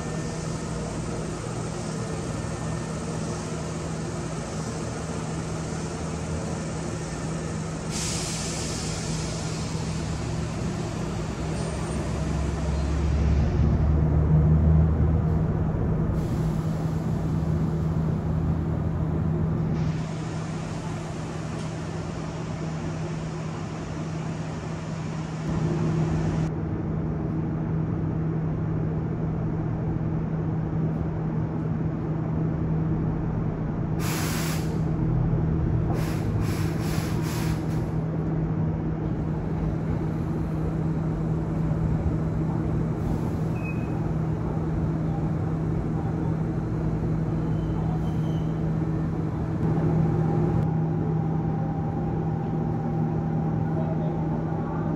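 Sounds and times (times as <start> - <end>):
electric train humming: 0.0 - 27.0
air brake hissing: 3.1 - 12.3, 16.2 - 17.9, 34.0 - 34.9, 35.9 - 38.0.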